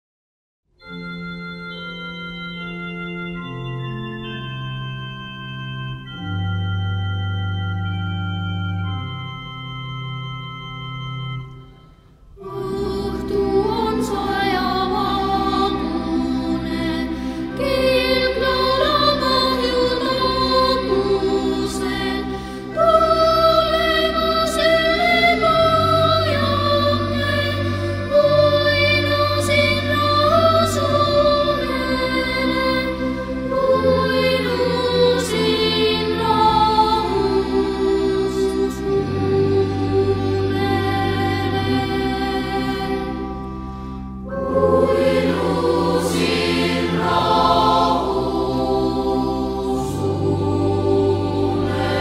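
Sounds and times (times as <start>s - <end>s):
organ playing slow chords: 0.8s - 52.0s
choir singing slow lullaby: 11.2s - 52.0s.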